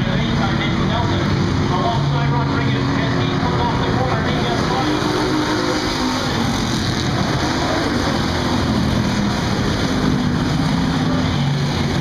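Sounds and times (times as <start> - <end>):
race car engines droning: 0.0 - 12.0.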